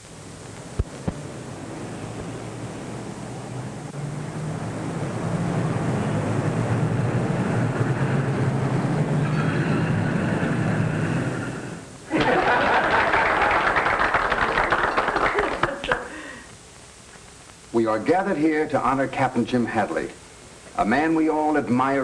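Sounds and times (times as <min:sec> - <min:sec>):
people applauding: 0:12.1 - 0:16.4.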